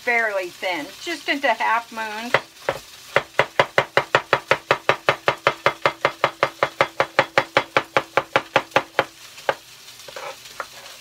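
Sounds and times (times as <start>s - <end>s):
knife tapping on cutting board: 2.3s - 9.6s.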